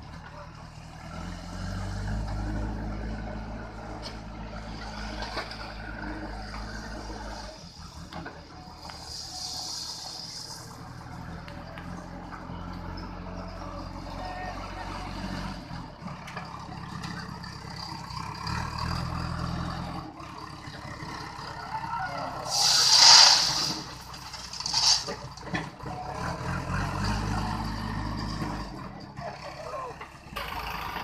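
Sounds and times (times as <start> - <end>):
diesel engine running: 0.0 - 31.0
stone pouring into steel trolley: 22.5 - 25.2.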